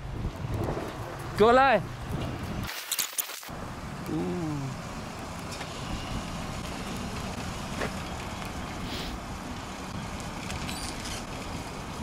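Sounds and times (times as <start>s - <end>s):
low street rumble: 0.0s - 2.7s, 3.5s - 12.0s
faint hiss: 4.0s - 11.9s.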